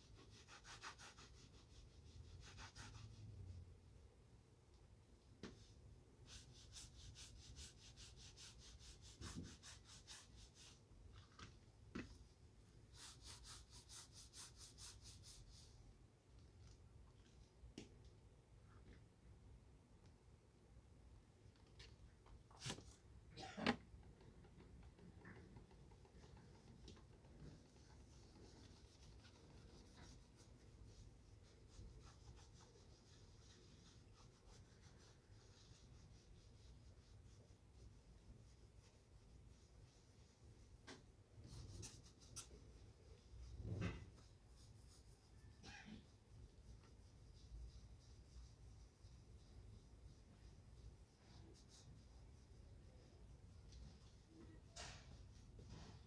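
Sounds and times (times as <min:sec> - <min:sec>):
rubbing strokes on leather shoe: 0:06.2 - 0:10.8, 0:12.8 - 0:15.7, 0:27.4 - 0:40.8, 0:41.4 - 0:56.0.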